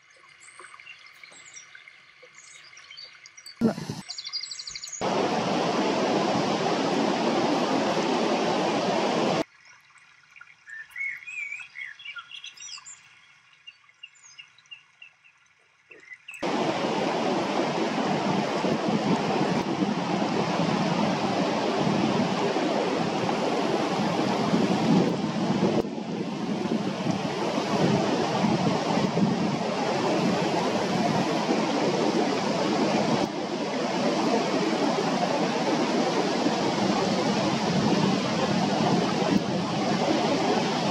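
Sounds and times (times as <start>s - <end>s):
water rushing over weir: 0.0s - 4.4s, 5.0s - 9.6s, 15.9s - 40.9s
small birds chirping: 0.3s - 5.0s, 10.6s - 16.4s.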